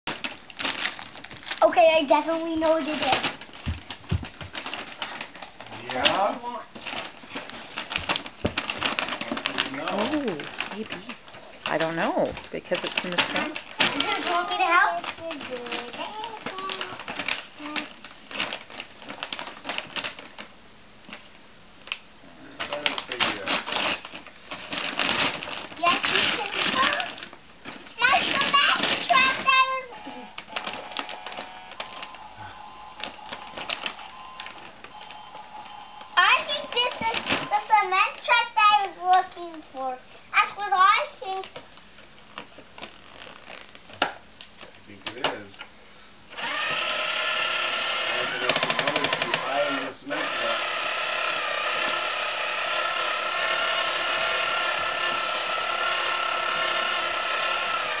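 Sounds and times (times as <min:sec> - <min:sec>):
toy box and wrapping crinkling: 0:00.1 - 0:45.4, 0:46.3 - 0:58.0
rapid rattling clatter: 0:48.2 - 0:49.5.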